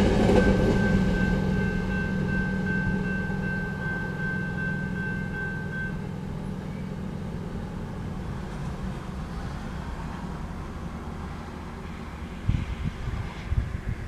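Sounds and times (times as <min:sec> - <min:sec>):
railroad crossing bell ringing: 0:00.0 - 0:08.3
train rumbling: 0:00.0 - 0:14.0.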